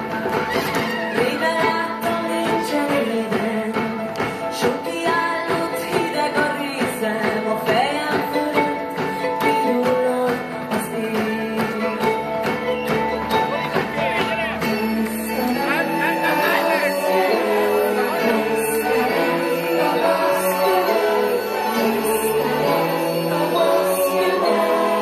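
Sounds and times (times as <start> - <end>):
electric guitars: 0.0 - 25.0
steady drum beat: 0.0 - 25.0
held string chords: 11.2 - 25.0.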